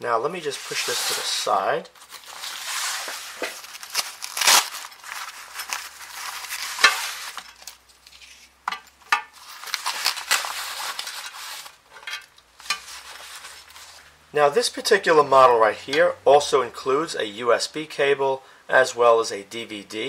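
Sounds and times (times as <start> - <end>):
nylon case rustling: 2.0 - 8.3.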